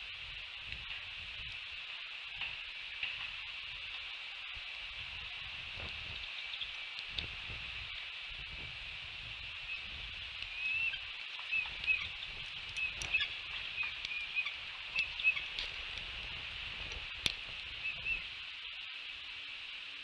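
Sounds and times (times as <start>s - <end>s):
steady high hiss: 0.0s - 20.0s
eaglets peeping: 9.6s - 16.0s, 17.7s - 18.3s.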